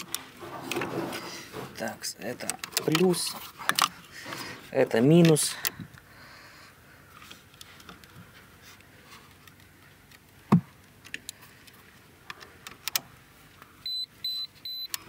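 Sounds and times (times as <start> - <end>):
cable clamps clicking and rattling: 0.0 - 4.4.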